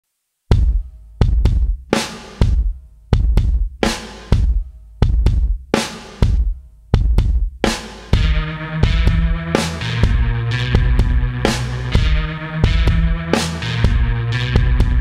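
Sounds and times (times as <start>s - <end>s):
drum beat with bass drum and snare: 0.5s - 15.0s
sustained low notes: 8.2s - 15.0s.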